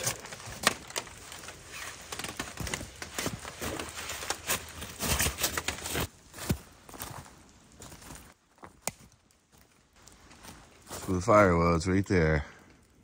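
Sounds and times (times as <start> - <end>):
rustling of hammock fabric: 0.0 - 8.8.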